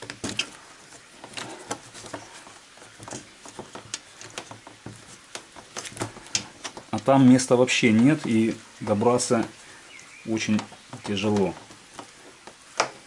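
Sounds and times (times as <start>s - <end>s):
hard plastic clicks and knocks: 10.4s - 13.0s.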